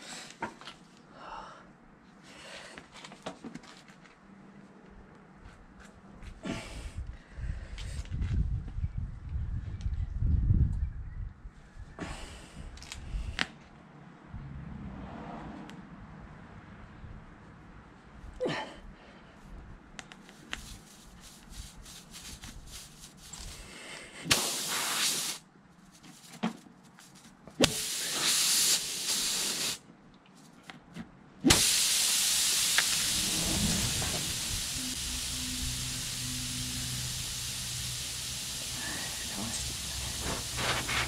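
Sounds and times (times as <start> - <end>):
air hissing from tyre: 20.3 - 25.4, 27.6 - 29.8, 31.4 - 41.0.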